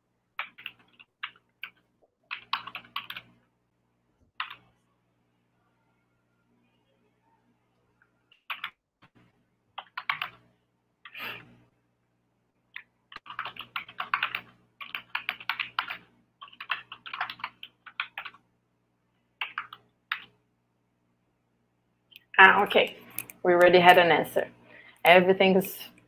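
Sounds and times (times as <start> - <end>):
faint low steady hum: 0.0 - 26.0
typing on computer keyboard: 0.4 - 3.3, 4.4 - 4.7, 8.4 - 8.8, 9.8 - 10.4, 12.8 - 18.4, 19.4 - 20.4.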